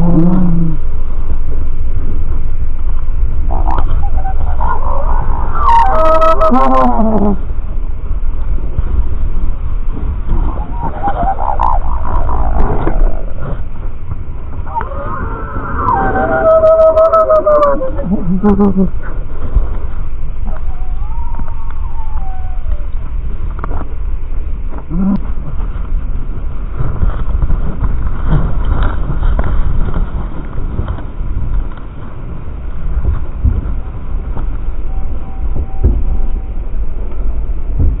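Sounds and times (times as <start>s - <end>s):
low rumble: 0.0s - 38.0s
slowed deep bird calls: 10.4s - 13.8s, 14.6s - 19.1s.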